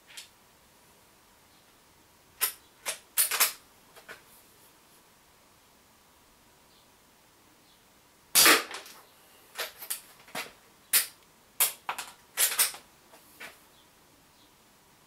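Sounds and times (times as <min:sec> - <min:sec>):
air rifle shot: 0:08.4 - 0:08.8.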